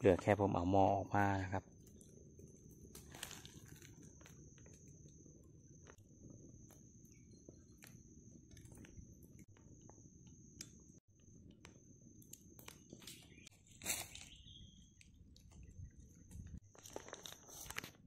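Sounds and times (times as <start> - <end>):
high-pitched insect drone: 0.0 - 11.1
campfire crackling: 1.6 - 18.0.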